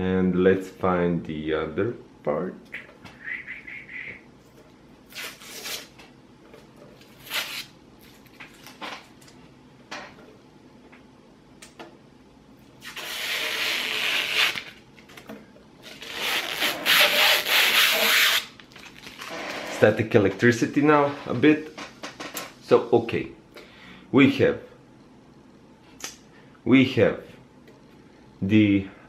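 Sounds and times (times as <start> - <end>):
packaging rustling on plastic: 18.6 - 19.3.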